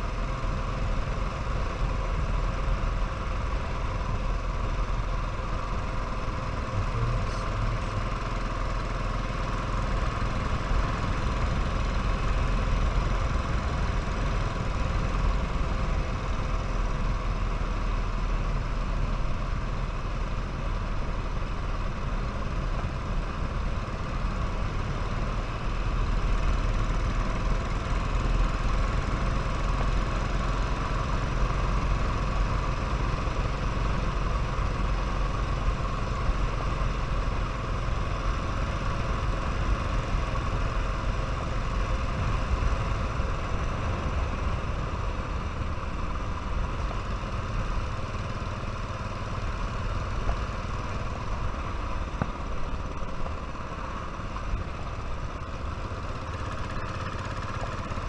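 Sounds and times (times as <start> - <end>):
motorcycle engine rumbling: 3.6 - 11.9.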